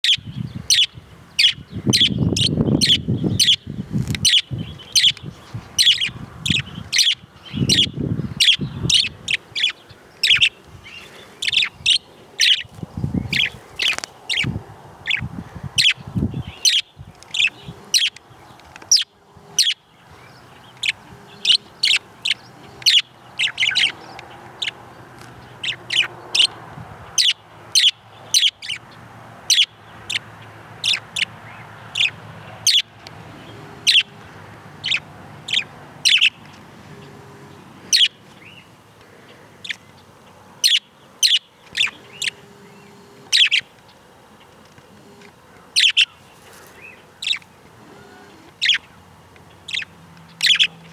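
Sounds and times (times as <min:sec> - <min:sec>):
budgerigars chirping: 0:00.0 - 0:18.2, 0:18.9 - 0:24.8, 0:25.4 - 0:26.6, 0:27.2 - 0:34.2, 0:34.8 - 0:38.7, 0:39.6 - 0:40.0, 0:40.6 - 0:43.7, 0:45.1 - 0:47.5, 0:48.5 - 0:48.9, 0:49.5 - 0:50.9.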